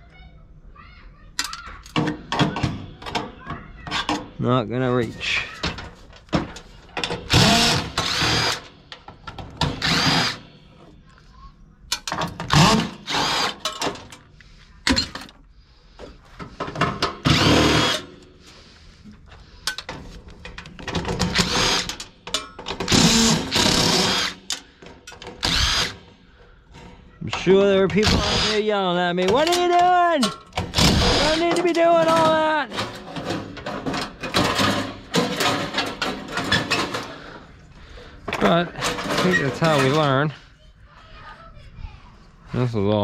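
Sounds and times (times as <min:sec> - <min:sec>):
impact driver bursts: 0:07.2 - 0:08.7, 0:09.6 - 0:10.6, 0:12.5 - 0:13.8, 0:16.7 - 0:18.2, 0:21.1 - 0:22.0, 0:22.7 - 0:24.6, 0:25.3 - 0:26.1, 0:28.0 - 0:28.7, 0:30.6 - 0:31.5.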